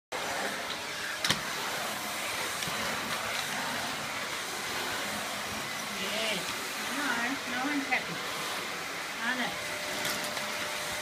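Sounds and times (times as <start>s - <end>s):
vacuum cleaner running: 0.1s - 11.0s.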